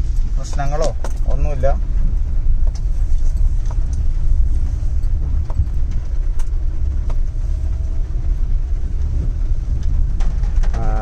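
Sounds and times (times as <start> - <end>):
car cabin rumble: 0.0 - 11.0
light ticks: 5.0 - 7.8.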